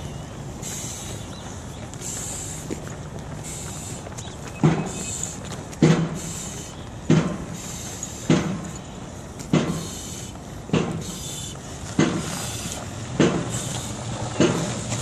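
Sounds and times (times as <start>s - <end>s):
heavy breathing through regulator: 4.8s - 6.8s, 7.4s - 8.8s, 9.6s - 12.8s.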